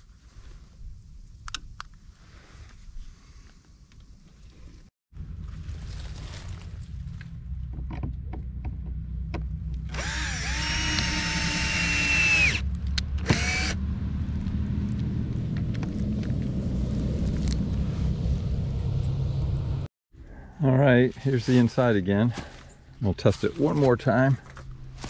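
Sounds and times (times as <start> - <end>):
low rumble: 5.2 - 21.2
cordless drill driving screw: 9.9 - 12.6, 13.2 - 13.8.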